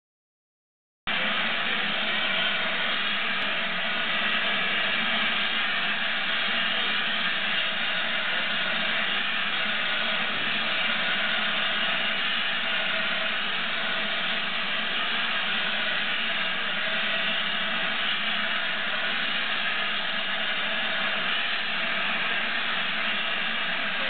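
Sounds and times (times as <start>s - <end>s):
steam locomotive hissing steam: 1.1s - 24.0s.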